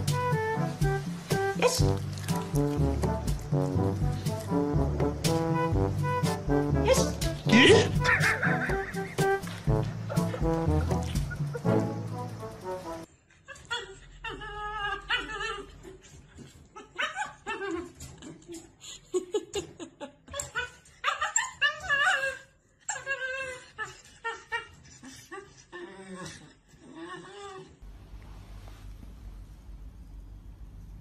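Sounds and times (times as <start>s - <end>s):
puppy whining and yowling: 13.4s - 16.2s, 20.3s - 27.8s.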